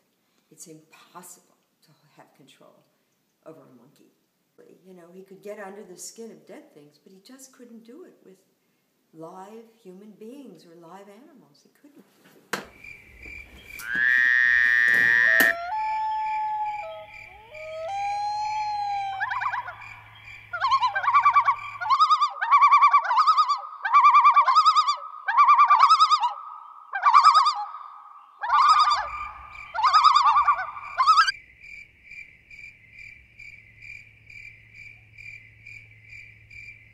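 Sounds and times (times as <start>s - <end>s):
insect trill: 12.7s - 22.7s, 28.2s - 36.9s
loud pulsing animal call: 13.8s - 31.3s.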